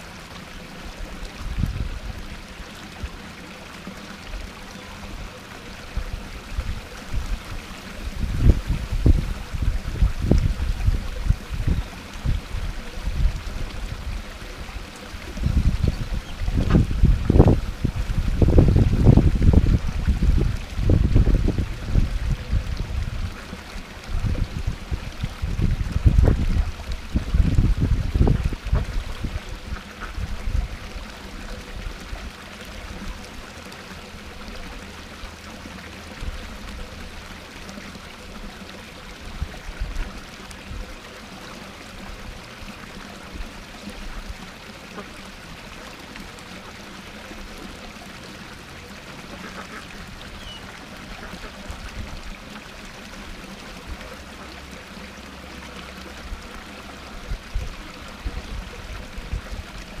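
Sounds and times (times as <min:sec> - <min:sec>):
waterfall splashing into pond: 0:00.0 - 1:00.0
ducks quacking: 0:49.3 - 0:50.6.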